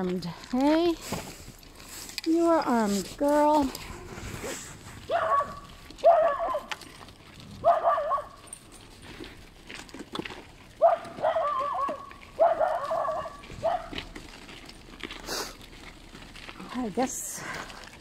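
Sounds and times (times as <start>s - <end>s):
dog barking: 5.1s - 6.8s, 7.6s - 8.4s, 10.8s - 14.0s.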